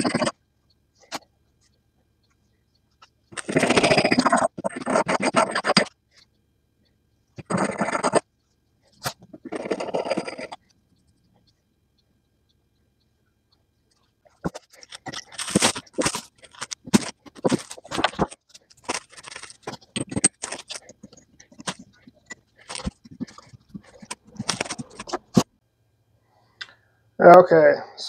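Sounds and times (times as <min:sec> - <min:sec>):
metal tool holder scraping and clicking: 0:14.4 - 0:25.4.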